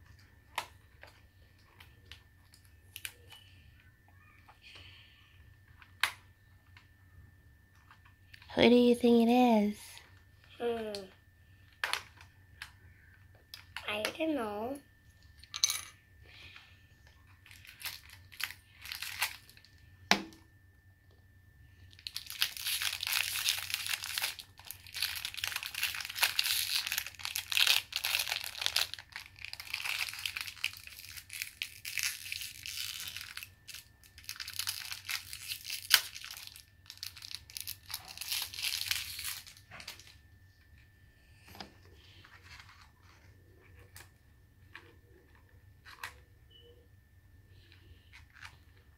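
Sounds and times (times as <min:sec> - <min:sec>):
plastic wrapping crinkling: 0:17.4 - 0:19.8, 0:21.8 - 0:40.3.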